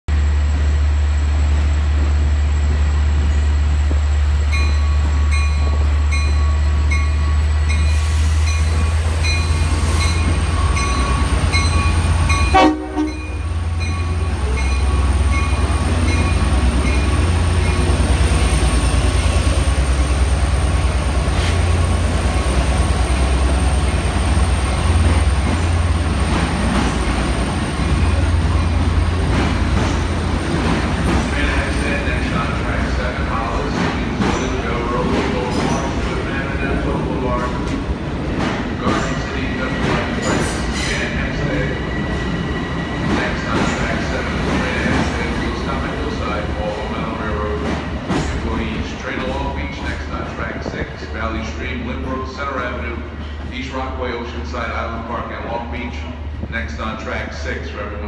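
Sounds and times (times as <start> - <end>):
diesel locomotive engine droning: 0.1 - 58.0
train cars rolling past: 0.1 - 58.0
train horn blast: 12.4 - 13.4.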